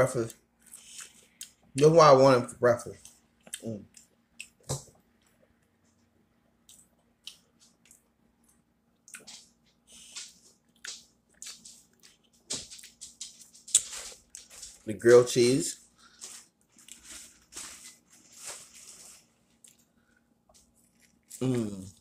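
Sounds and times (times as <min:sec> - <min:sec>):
chewing mouth clicks and smacks: 0:06.6 - 0:14.5.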